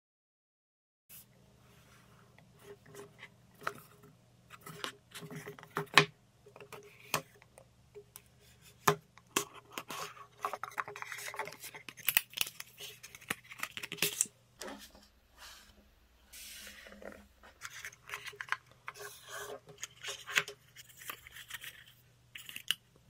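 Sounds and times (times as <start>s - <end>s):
faint steady hum: 1.1s - 23.0s.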